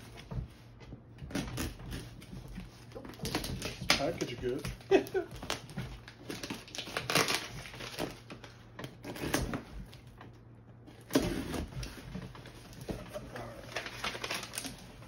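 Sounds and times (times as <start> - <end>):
cardboard scraping: 0.0 - 10.1, 10.9 - 15.0
blade slitting packing tape: 6.2 - 8.2, 9.0 - 9.6.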